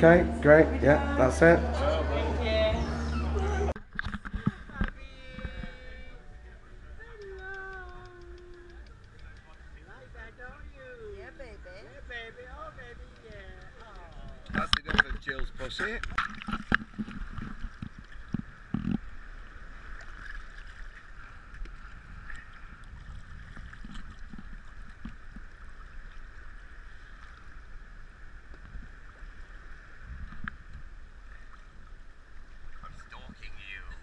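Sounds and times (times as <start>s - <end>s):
sea water lapping: 0.0s - 34.0s.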